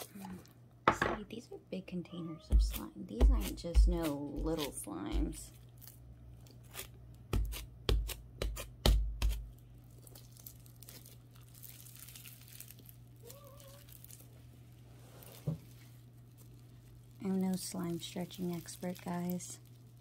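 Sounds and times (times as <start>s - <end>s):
slime crackling and tearing: 9.3s - 20.0s.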